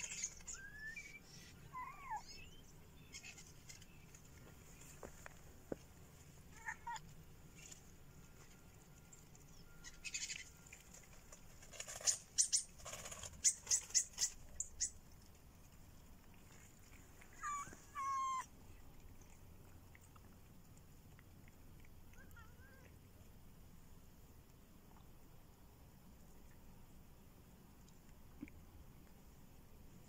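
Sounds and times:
kittens meowing: 0:17.3 - 0:18.5.

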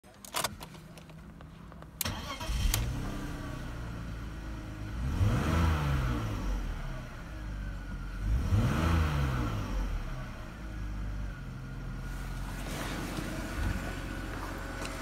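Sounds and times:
car engine idling: 0:09.8 - 0:15.0.

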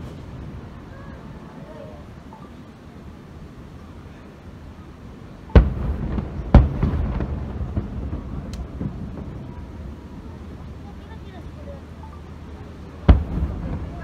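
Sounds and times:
lingering rumble: 0:00.0 - 0:14.0
fireworks booming: 0:05.4 - 0:11.5, 0:12.8 - 0:14.0
small firework pops: 0:05.6 - 0:09.4.

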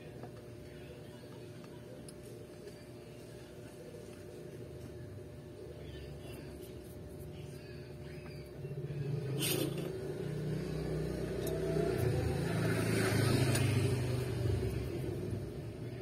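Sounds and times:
low motor rumble: 0:03.7 - 0:16.0.

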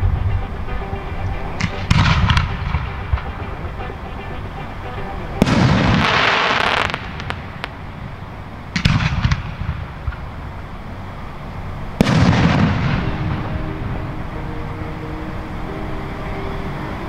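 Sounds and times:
firework cracks: 0:00.4 - 0:10.6, 0:11.9 - 0:14.2
firework boom with echo: 0:12.0 - 0:13.6.

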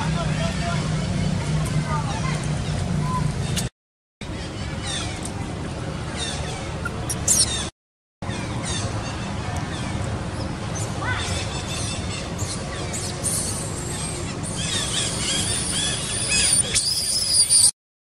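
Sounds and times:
outdoor background noise: 0:00.0 - 0:17.7
monkey squealing: 0:06.2 - 0:07.7, 0:13.2 - 0:17.7.

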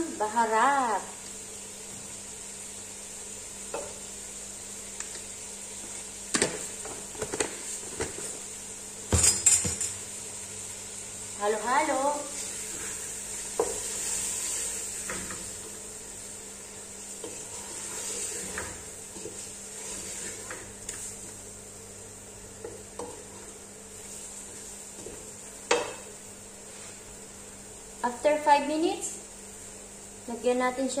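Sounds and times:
chicken sizzling in oil: 0:10.0 - 0:28.2.

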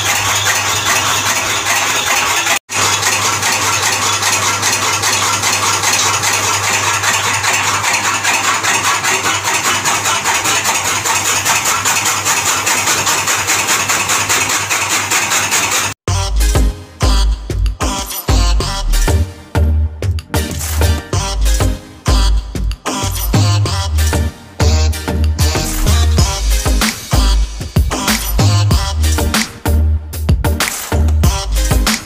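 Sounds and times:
chaff cutter blades chopping fodder: 0:00.0 - 0:16.0, 0:25.6 - 0:28.5.

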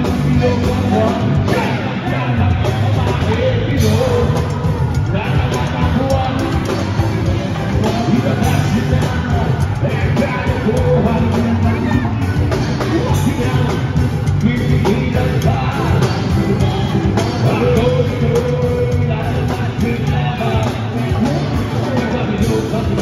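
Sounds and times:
drum beat: 0:00.0 - 0:23.0
electric bass: 0:00.0 - 0:23.0
live rock band: 0:00.0 - 0:23.0
vocals: 0:00.0 - 0:23.0.

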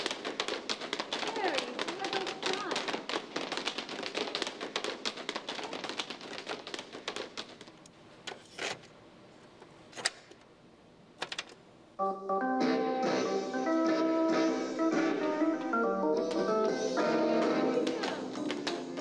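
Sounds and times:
organ-like music: 0:12.0 - 0:19.0.

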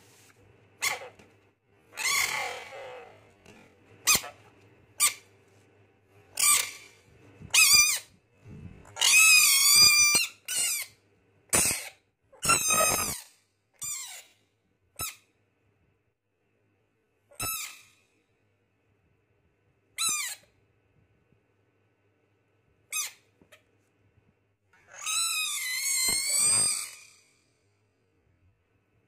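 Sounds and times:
frog distress screams: 0:02.0 - 0:03.2, 0:24.9 - 0:27.3.

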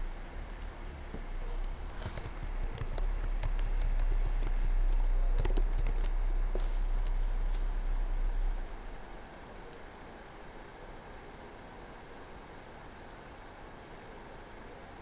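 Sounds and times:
steady low hum: 0:00.0 - 0:15.0
keyboard typing: 0:01.5 - 0:07.7.

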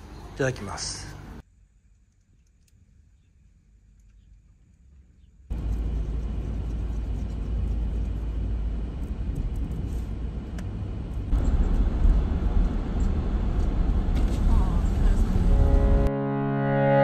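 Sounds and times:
car road and engine rumble: 0:05.5 - 0:16.1.

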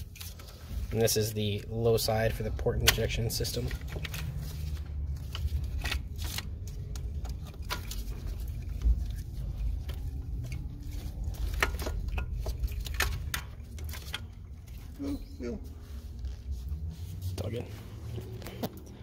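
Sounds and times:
steady low rumble: 0:00.6 - 0:19.0
clicks and taps of handling parts: 0:02.8 - 0:04.4.

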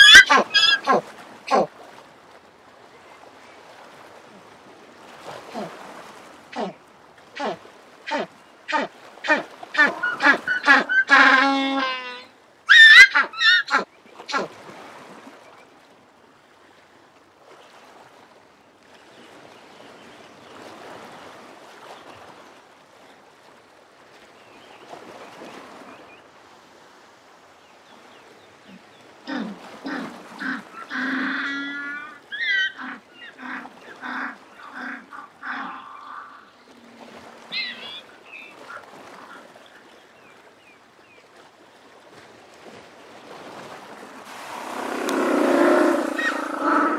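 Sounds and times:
penguin braying: 0:00.0 - 0:01.7, 0:07.4 - 0:14.5.

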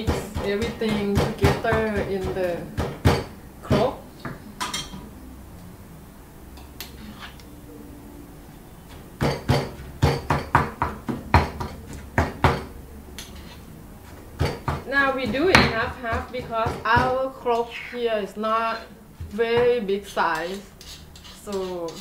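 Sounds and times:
stone pestle pounding in mortar: 0:00.0 - 0:03.9, 0:09.2 - 0:12.7, 0:14.4 - 0:17.2.

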